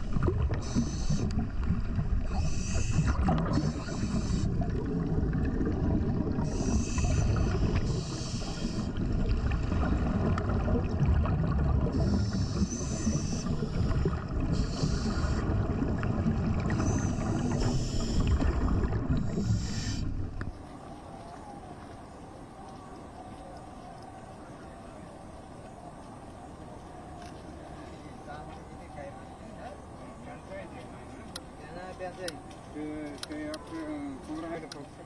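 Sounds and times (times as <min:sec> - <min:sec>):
underwater rumble and bubbles: 0:00.0 - 0:31.6
short hissing bursts: 0:00.6 - 0:01.3, 0:02.3 - 0:04.6, 0:06.5 - 0:08.9, 0:14.5 - 0:15.5, 0:16.8 - 0:18.3, 0:19.4 - 0:20.2.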